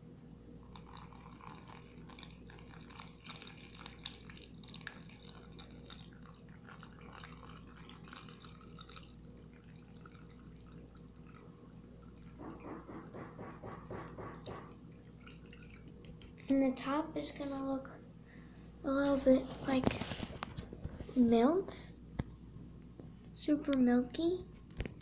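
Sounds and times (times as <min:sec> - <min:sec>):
water trickling and splashing: 0:00.7 - 0:16.5.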